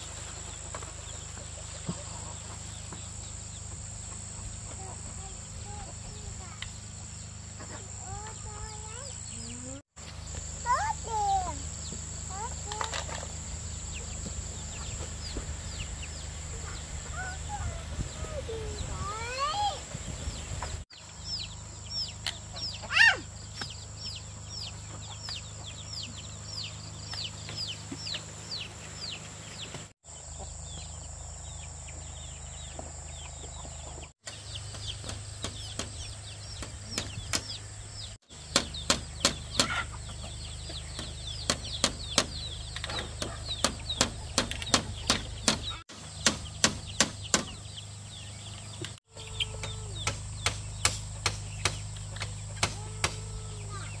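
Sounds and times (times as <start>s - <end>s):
background hum: 0.0s - 54.0s
chicks peeping: 0.0s - 54.0s
sharp knocks: 38.5s - 39.8s, 40.9s - 47.6s, 49.6s - 53.2s.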